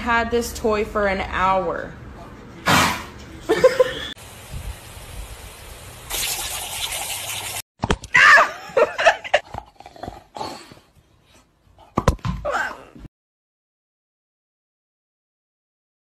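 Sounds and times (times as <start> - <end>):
sprinkler water jet hissing: 4.2 - 7.6.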